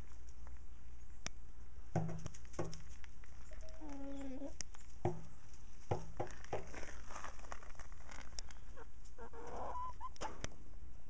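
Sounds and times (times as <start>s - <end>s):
chickens clucking: 3.4s - 4.6s, 8.6s - 10.5s.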